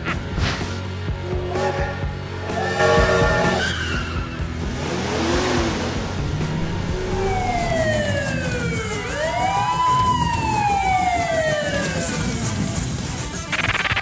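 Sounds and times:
police siren wailing: 6.4 - 12.6.

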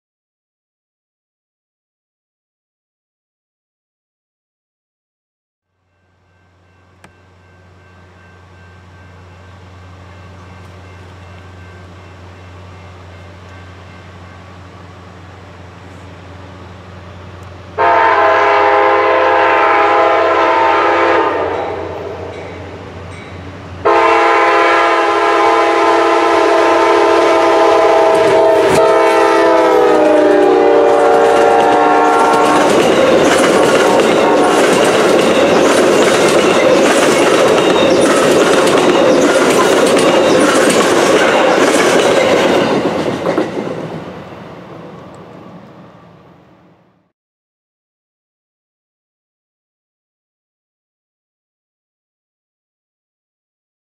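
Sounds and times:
train cars rushing past: 5.8 - 47.0
train air horn: 17.8 - 22.4, 23.8 - 34.9
wheels clacking over rail joints: 30.0 - 44.2.

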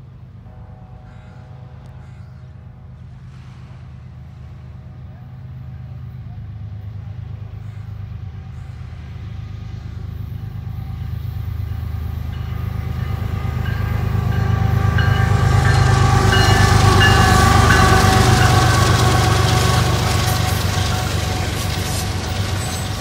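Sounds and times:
diesel locomotive engine drone: 0.0 - 23.0
rail and wheel noise: 0.0 - 23.0.

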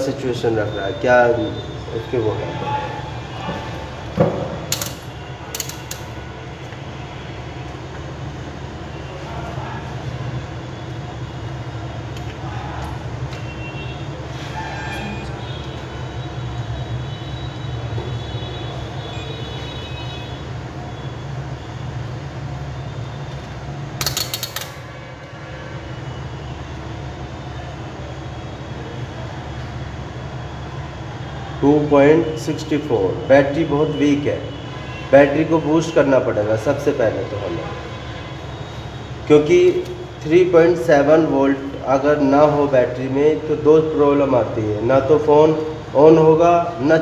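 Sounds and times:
sharp clicks: 4.7 - 6.1, 24.0 - 24.8
rotary switch clicking: 24.0 - 24.8.

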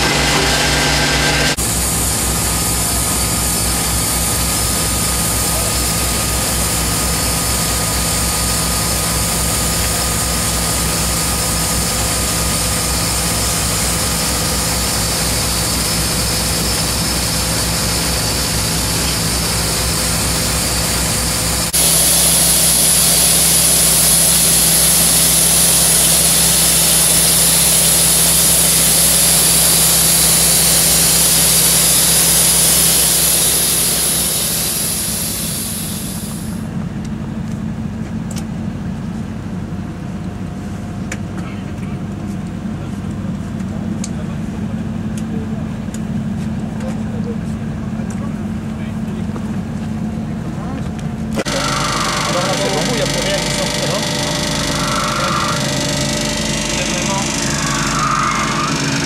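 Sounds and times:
air compressor engine drone: 0.0 - 59.0
hiss: 1.6 - 36.6.

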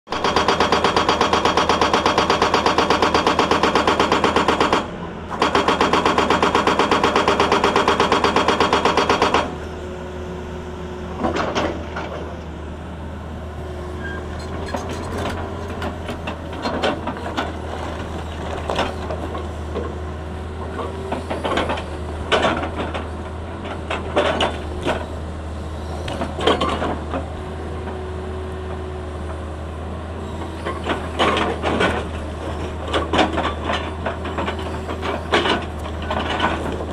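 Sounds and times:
hydraulic breaker hammering rock: 0.1 - 9.6
diesel engine running: 0.2 - 36.9.

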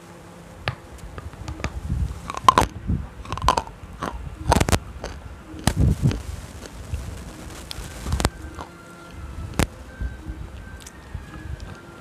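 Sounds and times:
stone stick crunched by teeth: 2.3 - 2.7, 3.3 - 6.7.

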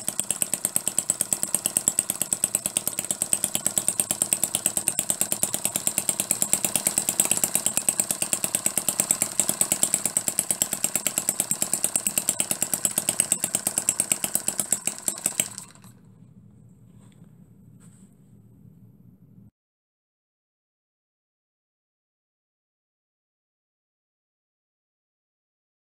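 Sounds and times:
miniature engine running: 0.0 - 16.0.

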